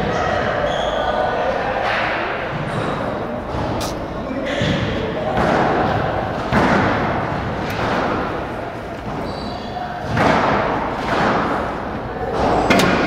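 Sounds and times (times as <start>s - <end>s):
shoe squeaks on court floor: 0.6s - 1.2s, 9.1s - 9.9s.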